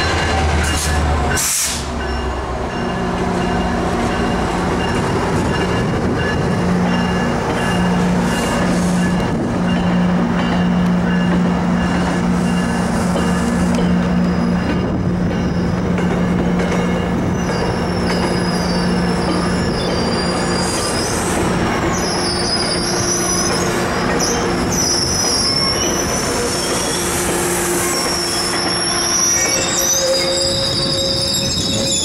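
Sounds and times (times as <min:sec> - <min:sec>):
train cars rolling on rails: 0:00.0 - 0:32.0
wheels squealing: 0:27.8 - 0:32.0.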